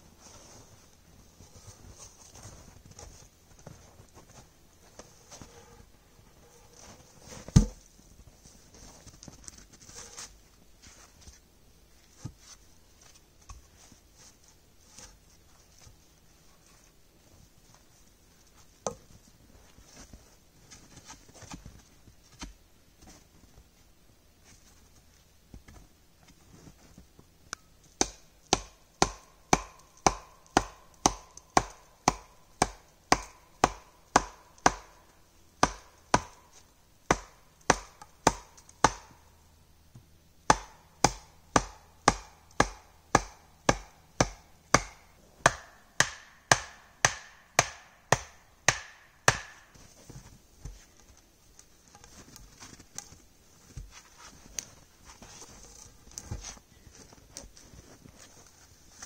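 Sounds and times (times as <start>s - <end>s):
wooden mallet pounding wooden pole: 28.0s - 34.9s, 35.6s - 36.4s, 37.1s - 39.2s, 40.5s - 49.6s.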